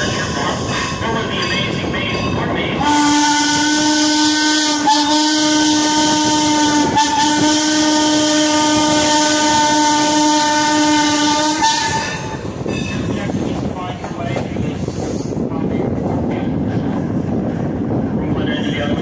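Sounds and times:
steam whistle blast: 2.8s - 12.2s.

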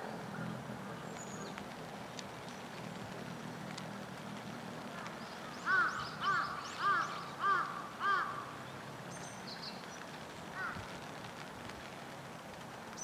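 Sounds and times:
crow cawing: 5.6s - 8.5s, 10.6s - 10.8s.

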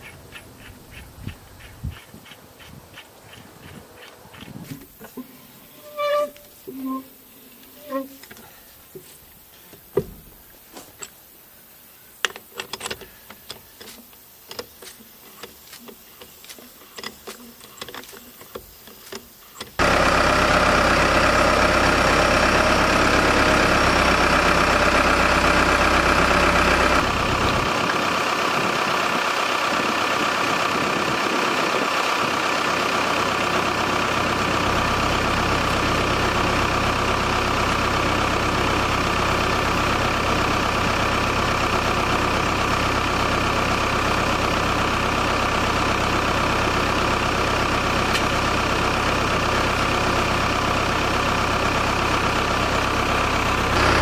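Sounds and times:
engine idling: 19.8s - 54.0s.

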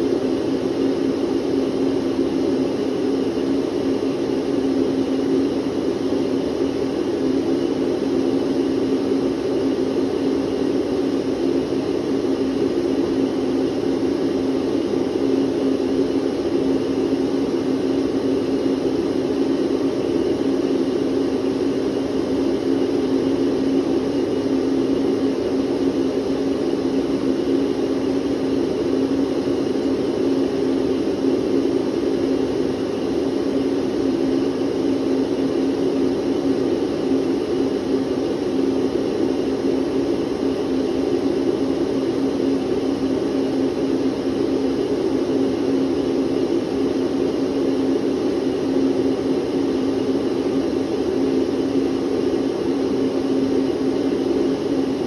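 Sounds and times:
vacuum cleaner running: 0.0s - 22.0s.

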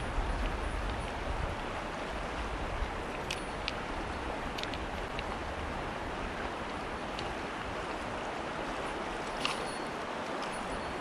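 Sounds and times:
rushing mountain stream: 0.0s - 11.0s
light clicks: 4.5s - 5.3s.

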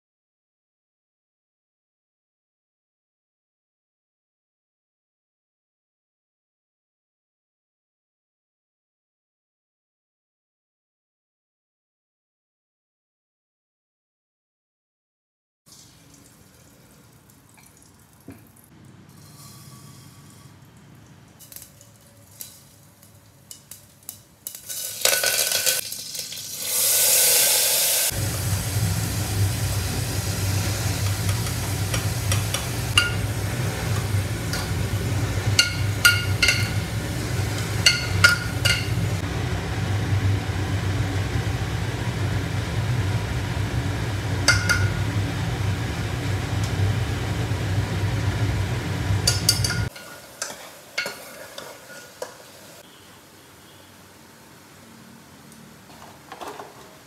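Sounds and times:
steel spoon clinking on pot: 21.4s - 25.8s, 31.3s - 33.3s, 35.5s - 39.0s, 44.5s - 45.0s, 49.3s - 52.5s
food sizzling in hot oil: 21.4s - 53.9s
low hum: 28.1s - 49.9s.

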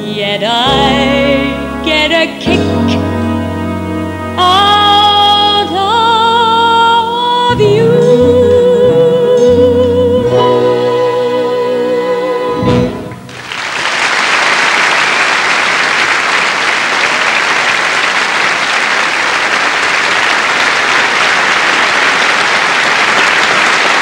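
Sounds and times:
woman singing with vibrato: 0.0s - 3.2s, 4.3s - 13.1s
musical accompaniment chord: 0.6s - 6.6s
audience applause: 13.2s - 24.0s.

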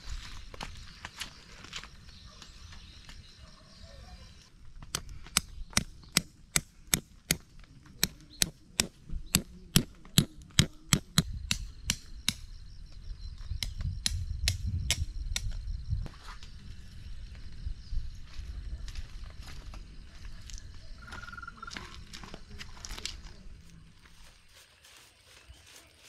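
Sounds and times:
hammer striking metal stake: 4.9s - 12.4s.

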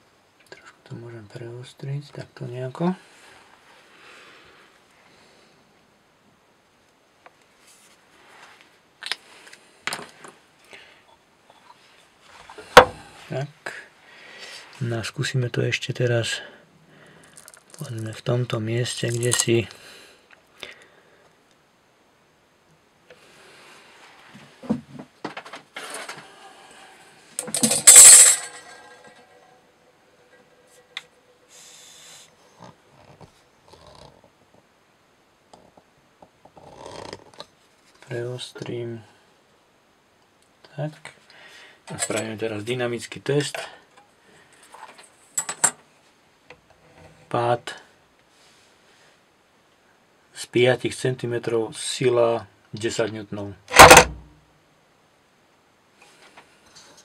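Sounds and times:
handling clicks and knocks: 27.4s - 29.4s, 53.7s - 54.2s
short hiss: 31.5s - 32.3s.

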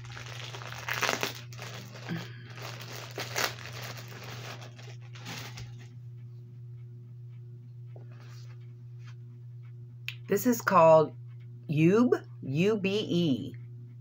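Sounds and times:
plastic wrapping crinkling: 0.0s - 5.9s.

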